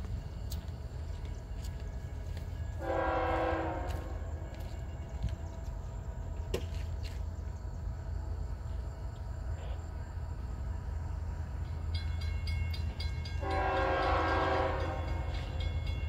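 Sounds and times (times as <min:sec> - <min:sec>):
distant locomotive horn: 0:02.7 - 0:05.1, 0:13.3 - 0:15.9.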